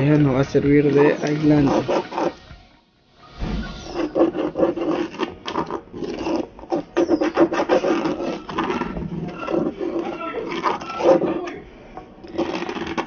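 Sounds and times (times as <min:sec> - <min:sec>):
scratching on coarse sandpaper: 0:01.0 - 0:02.4, 0:03.4 - 0:11.4.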